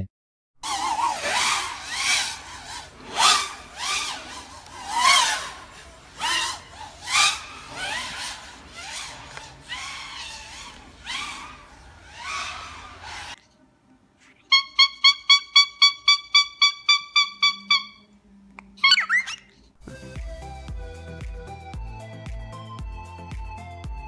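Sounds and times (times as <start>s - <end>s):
drone motors whining: 0.6s - 13.4s.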